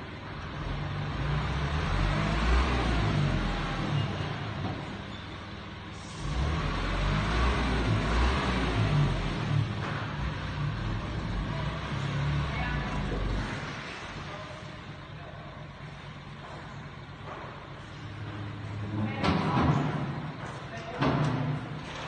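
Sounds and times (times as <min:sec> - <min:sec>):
truck engine revving: 0:00.2 - 0:15.1.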